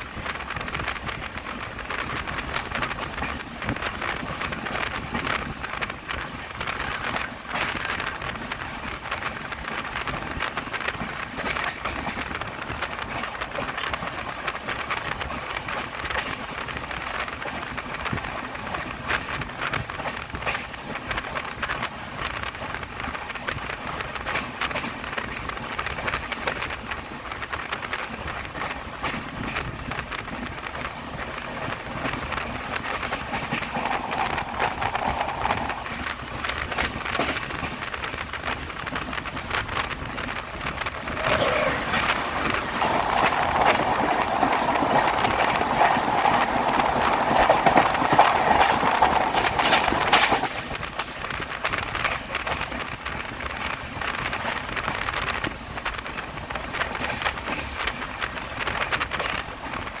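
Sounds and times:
train rumbling past on rails: 0.0s - 60.0s
rain falling: 31.7s - 60.0s.

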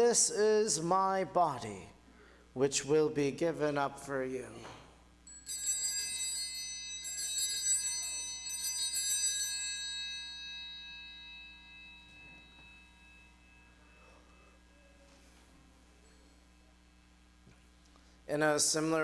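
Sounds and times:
small altar bells ringing: 5.2s - 17.4s.

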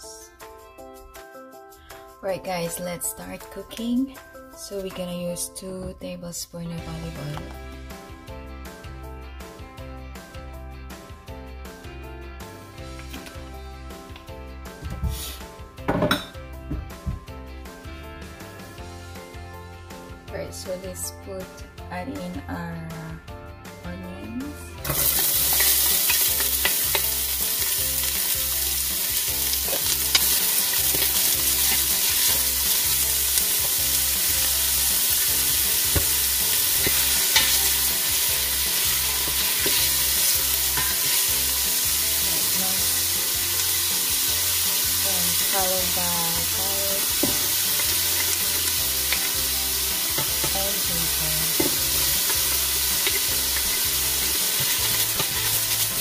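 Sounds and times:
onions sizzling in oil: 24.8s - 56.0s.

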